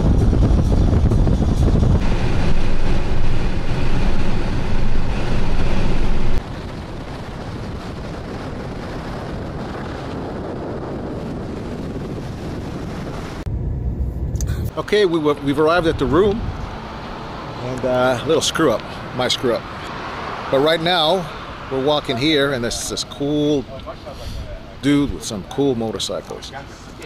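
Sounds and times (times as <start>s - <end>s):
wind buffeting microphone: 0.0s - 19.2s
car road noise: 0.0s - 25.7s.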